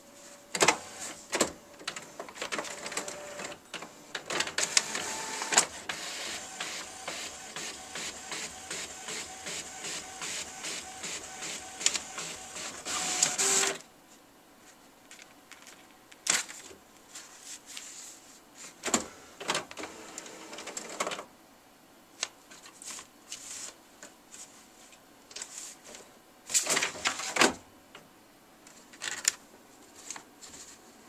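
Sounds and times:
inkjet printer printing: 0.5 - 13.8, 19.5 - 21.2.

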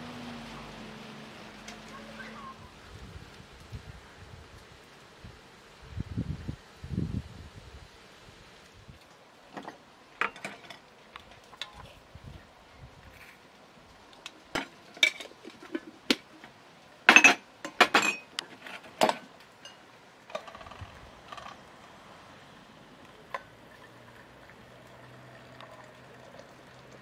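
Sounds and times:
metal and glass clinks and knocks: 9.6 - 11.8, 14.6 - 15.9, 17.1 - 21.6.

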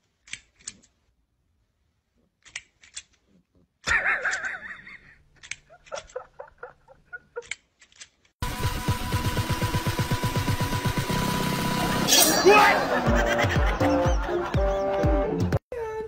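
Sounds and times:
person laughing: 3.8 - 7.6, 11.8 - 15.1.

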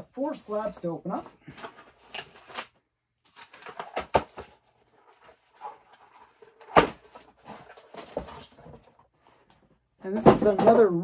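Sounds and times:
plastic packaging rustling: 1.1 - 9.4.

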